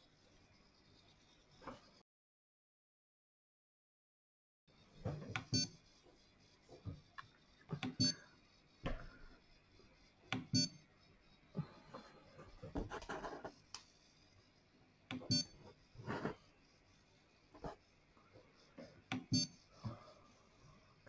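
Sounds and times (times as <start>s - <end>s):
printer beeps: 5.4s - 5.8s, 7.8s - 8.3s, 10.4s - 10.9s, 15.2s - 15.8s, 19.2s - 19.7s.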